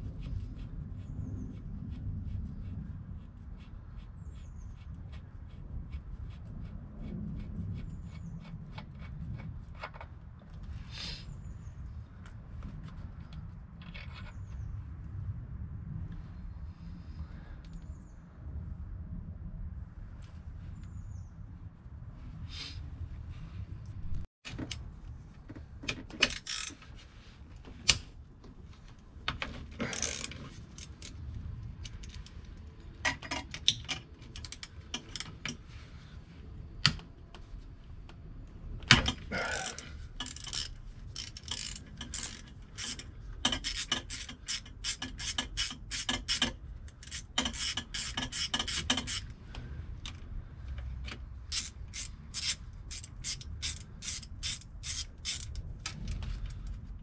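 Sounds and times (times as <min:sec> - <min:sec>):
hand ratchet clicking: 0:26.3 - 0:26.8, 0:39.5 - 0:49.3, 0:51.5 - 0:55.6.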